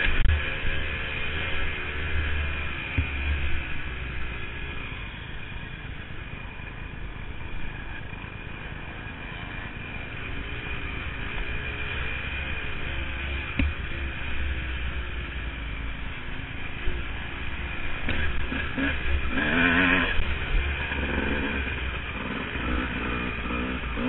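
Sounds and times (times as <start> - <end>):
dirt bike engine revving: 17.4 - 24.0.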